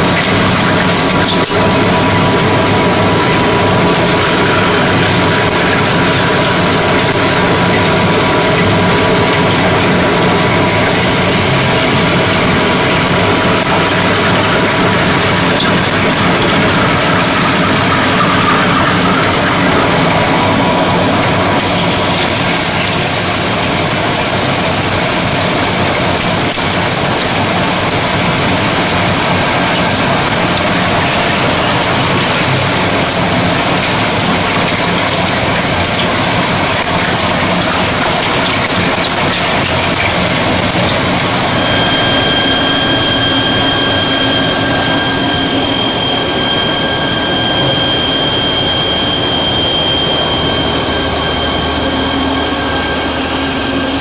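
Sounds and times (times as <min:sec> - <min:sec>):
steady high whine: 0:00.0 - 0:54.0
wood chipper running: 0:00.0 - 0:54.0.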